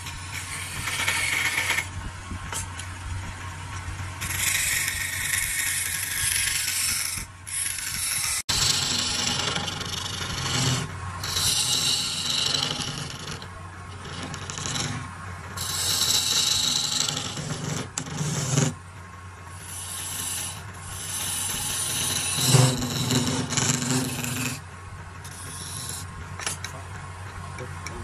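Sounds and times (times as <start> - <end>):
low steady hum: 0.0 - 28.0
lathe tool cutting wood: 4.2 - 18.7, 19.6 - 24.6.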